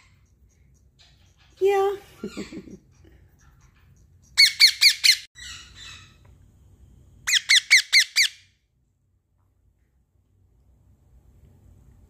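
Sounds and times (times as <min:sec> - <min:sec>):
parakeet squawks: 0:02.2 - 0:06.2, 0:07.3 - 0:08.5.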